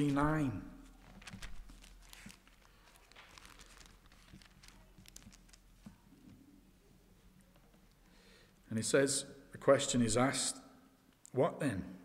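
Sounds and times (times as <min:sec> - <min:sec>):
thin pages rustling: 0:00.0 - 0:06.4.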